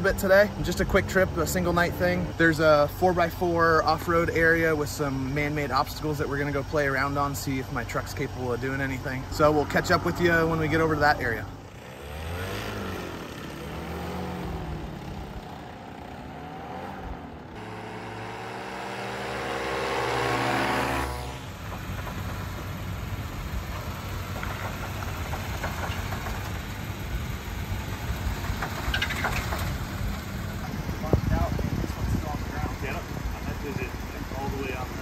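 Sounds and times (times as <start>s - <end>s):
car engine running at low speed: 5.1s - 35.0s
paramotor engine droning: 9.1s - 35.0s.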